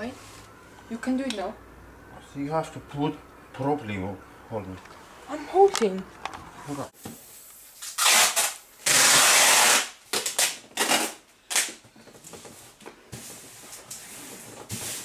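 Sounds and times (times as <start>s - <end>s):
rustling noise: 11.8s - 15.0s.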